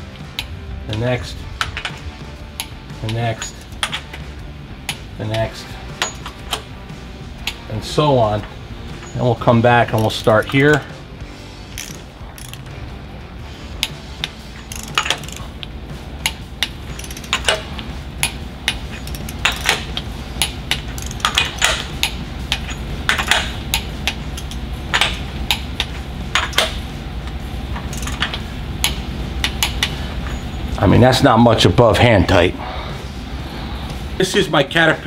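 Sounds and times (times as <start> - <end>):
steady low hum: 0.0 - 35.0
torque wrench clicking: 11.7 - 12.7, 13.8 - 17.6, 18.2 - 26.7, 27.8 - 29.9.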